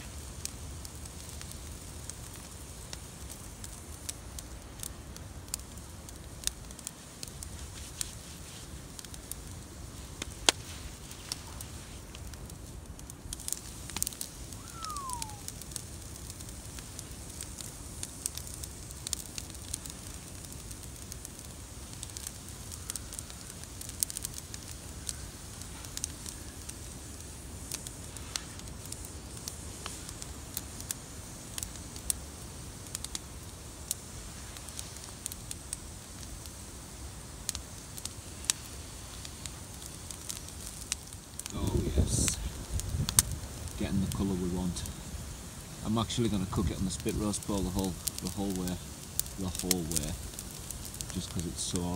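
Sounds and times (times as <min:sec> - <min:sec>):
campfire crackling and popping: 0:00.0 - 0:51.9
short falling whistle: 0:14.6 - 0:15.5.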